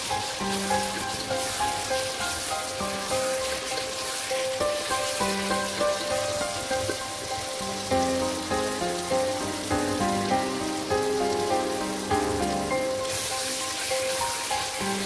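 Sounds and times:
curry sizzling and bubbling: 0:00.0 - 0:15.0
instrumental background music: 0:00.0 - 0:15.0.

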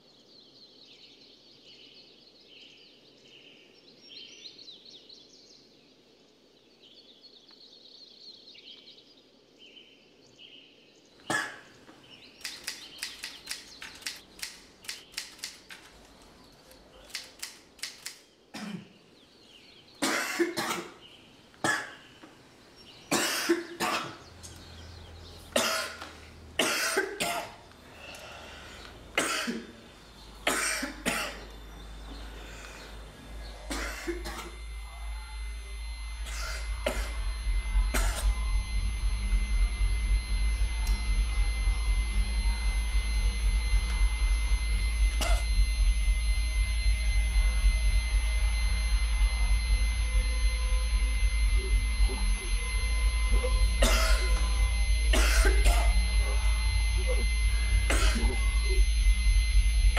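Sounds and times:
faint high chirping: 0:21.0 - 0:59.9.

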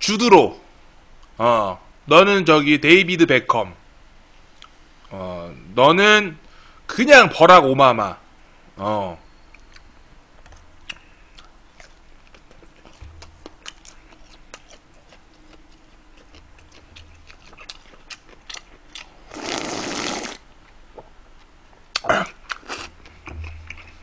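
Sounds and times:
person chewing crunchy food: 0:10.6 - 0:20.4, 0:21.0 - 0:24.0
sharp mouth sounds: 0:10.8 - 0:20.4.

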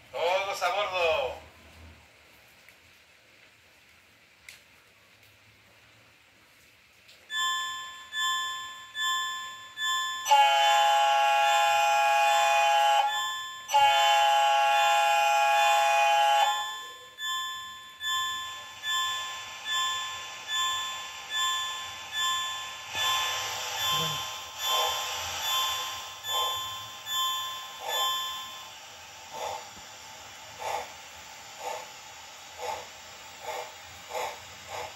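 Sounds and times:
locomotive bell ringing: 0:07.3 - 0:29.7
air horn blasts: 0:10.3 - 0:13.1, 0:13.8 - 0:16.6.

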